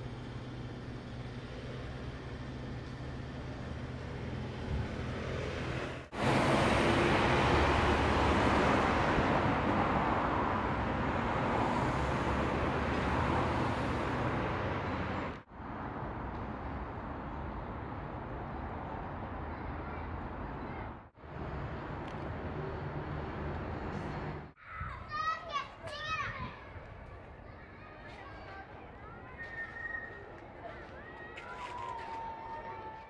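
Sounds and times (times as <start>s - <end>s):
truck driving past: 0.0s - 15.5s
road traffic passing: 0.0s - 32.0s.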